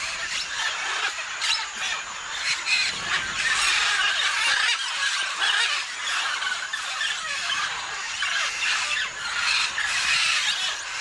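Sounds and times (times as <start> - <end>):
macaws and parrots calling: 0.0 - 11.0.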